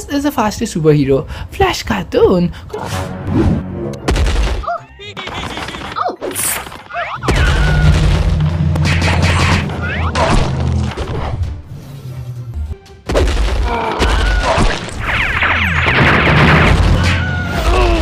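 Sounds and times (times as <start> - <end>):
loud cartoon boom: 7.2 - 10.6
low rumble: 7.2 - 12.8.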